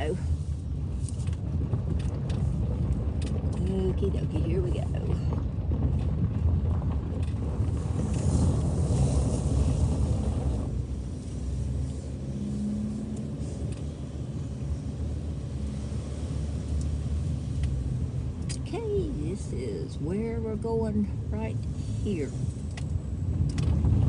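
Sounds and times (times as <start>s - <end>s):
car engine and tyre rumble: 0.0s - 24.0s.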